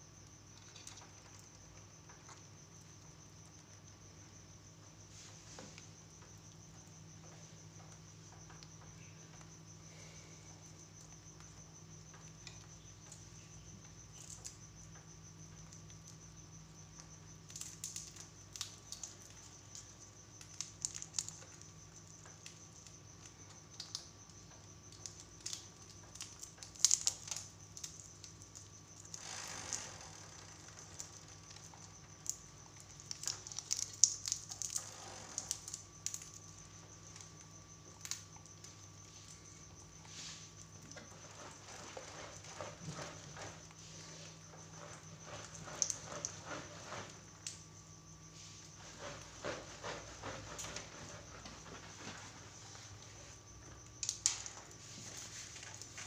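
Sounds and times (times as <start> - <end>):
parakeets cracking peanuts: 16.9 - 39.4.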